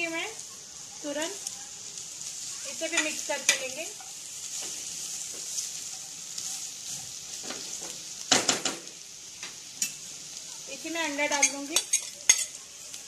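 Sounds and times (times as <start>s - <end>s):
food sizzling in hot oil: 0.0s - 13.0s
spatula scraping a pan: 2.3s - 8.3s.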